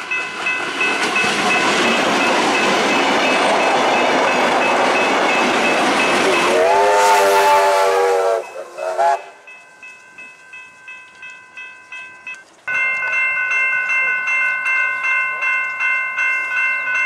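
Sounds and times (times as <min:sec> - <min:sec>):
steam hissing: 0:00.0 - 0:09.6
train carriages rolling by: 0:00.0 - 0:17.0
steam whistle: 0:06.2 - 0:09.5.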